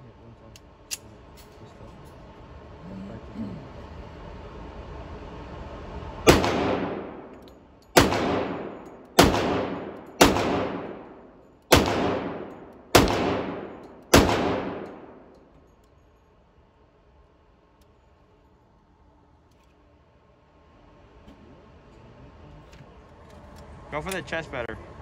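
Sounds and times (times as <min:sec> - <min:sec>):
pistol shots echoing indoors: 0:06.2 - 0:15.5.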